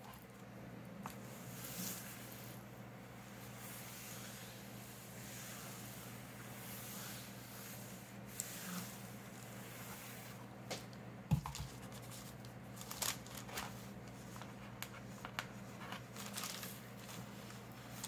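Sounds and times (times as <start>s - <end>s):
steady low hum: 0.0s - 18.0s
paper pages rustling: 11.4s - 18.0s.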